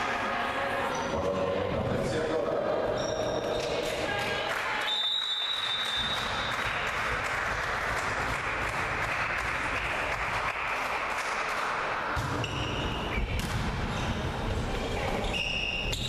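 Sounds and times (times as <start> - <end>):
spectators clapping: 4.1 - 12.1
high whistle tone: 4.9 - 6.3.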